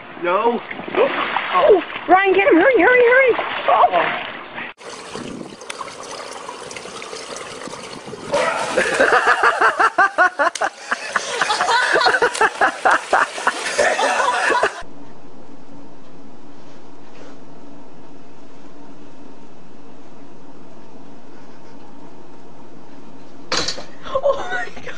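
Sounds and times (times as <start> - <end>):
water splashing: 0.6 - 2.4, 3.0 - 14.8
people laughing: 8.4 - 14.8
steady low hum: 13.8 - 24.9.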